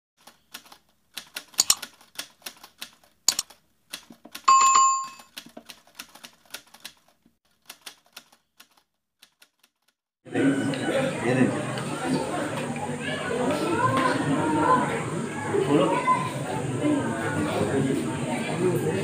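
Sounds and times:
keyboard typing clicks: 0.2 - 7.0
bright bell ding: 4.5 - 5.3.

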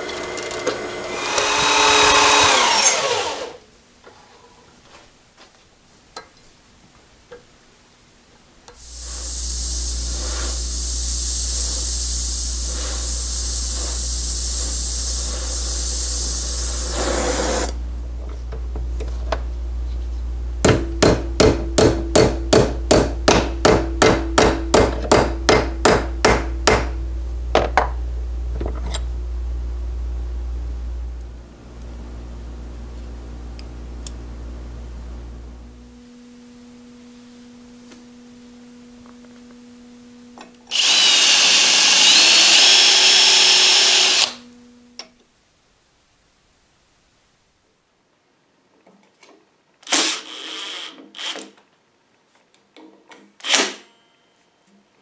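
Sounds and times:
electric bench tool humming: 0.0 - 3.6, 8.8 - 19.5, 26.6 - 45.0
loud hiss: 8.8 - 17.8, 40.7 - 44.4
hammer striking steel: 20.6 - 27.0.

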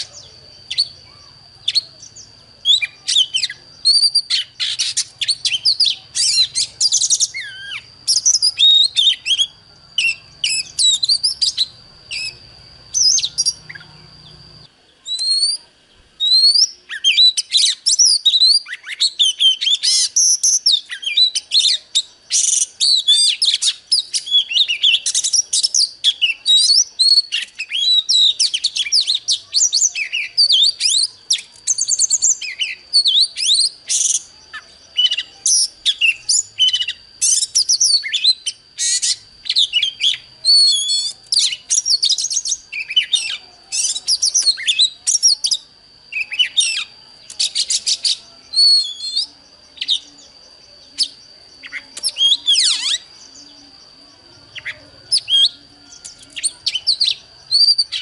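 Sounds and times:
bird singing whistles and chirps: 0.0 - 58.0.

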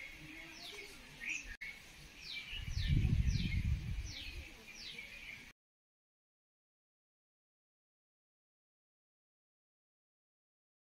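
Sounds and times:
bird chirping: 0.0 - 5.5
low rumbling on microphone: 2.6 - 4.5.

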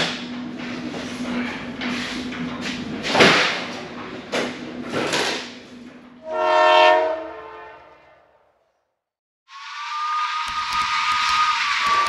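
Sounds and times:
horn-like chord: 6.2 - 8.0.

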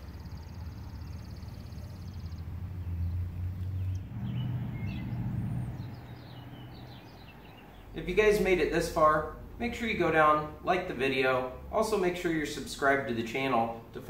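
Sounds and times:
steady low rumble: 1.8 - 12.2.

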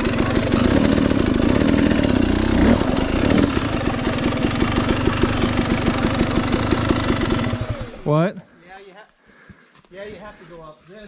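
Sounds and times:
dirt bike engine running: 0.0 - 8.3.

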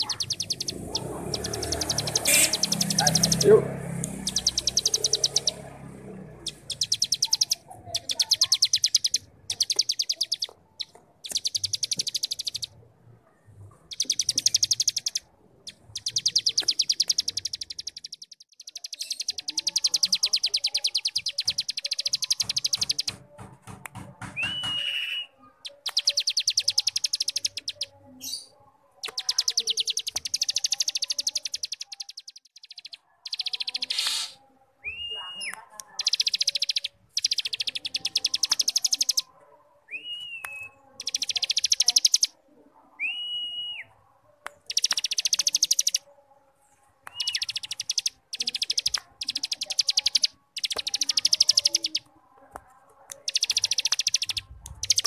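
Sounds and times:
bird buzzy trills: 0.0 - 12.8, 44.7 - 46.0, 53.2 - 55.0.

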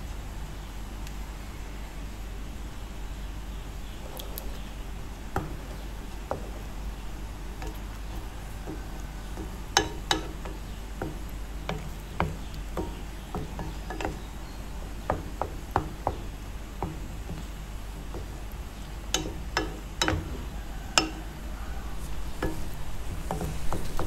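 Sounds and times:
wooden spatula scraping frying pan: 7.4 - 18.4, 21.8 - 24.0.

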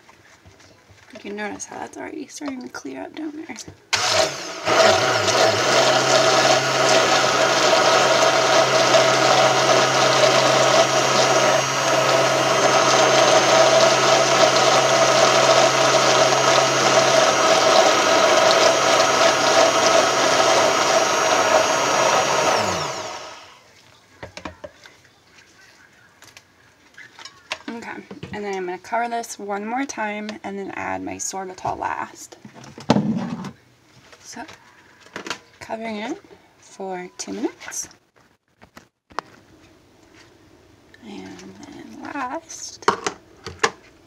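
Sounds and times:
stick blender running: 3.9 - 23.6.

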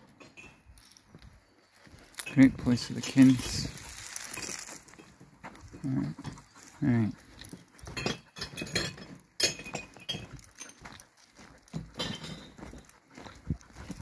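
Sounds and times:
footsteps crunching on gravel: 0.6 - 8.0, 9.0 - 14.0
light clinks: 7.4 - 12.9.

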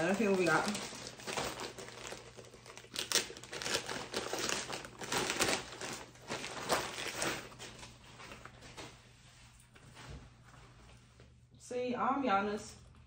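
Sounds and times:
packaging crinkling: 0.0 - 8.9.

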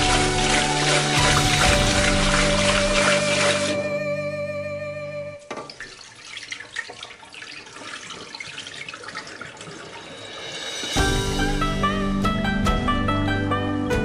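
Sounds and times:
water pouring into sink drain: 0.0 - 3.8, 5.5 - 11.0
background music: 0.0 - 5.5, 10.4 - 14.0.

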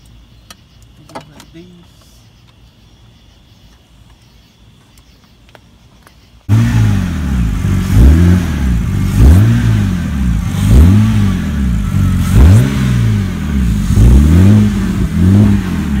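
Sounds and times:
car engine revving: 6.5 - 16.0.

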